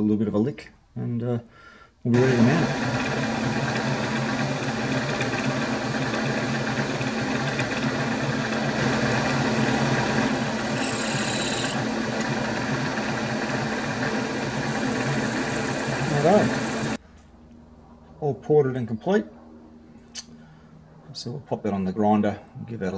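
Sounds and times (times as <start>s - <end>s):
milling machine drilling metal: 2.2s - 17.0s.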